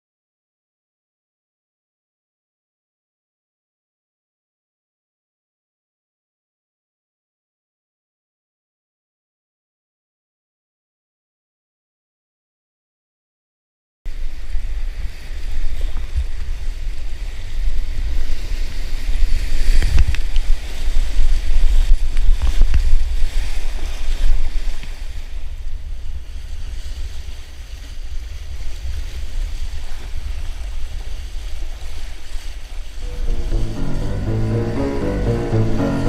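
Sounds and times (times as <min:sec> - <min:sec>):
wind buffeting microphone: 0:14.1 - 0:33.3
rapids rushing and splashing: 0:33.0 - 0:36.0.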